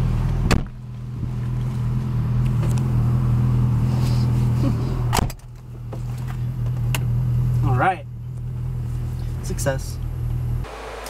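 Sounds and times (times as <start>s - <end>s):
car engine idling: 0.0s - 11.0s
sharp thump: 0.4s - 0.8s, 5.1s - 5.5s.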